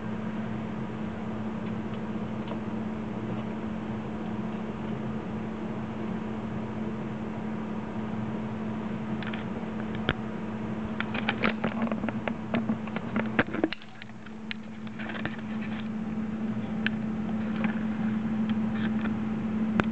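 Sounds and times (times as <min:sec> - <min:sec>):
steady low hum: 0:00.0 - 0:19.9
small clicks and crackles: 0:09.2 - 0:10.2, 0:10.9 - 0:19.9.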